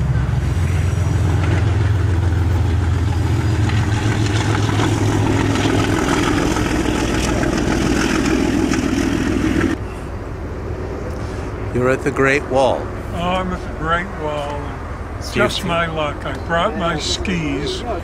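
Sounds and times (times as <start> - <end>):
loud low drone: 0.0 - 13.8.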